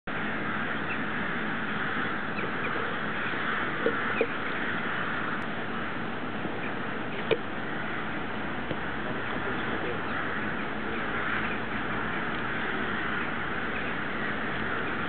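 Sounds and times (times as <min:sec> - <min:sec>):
flock of rooks cawing: 0:00.1 - 0:15.0
loud single rook caws: 0:00.3 - 0:05.8, 0:10.0 - 0:15.0.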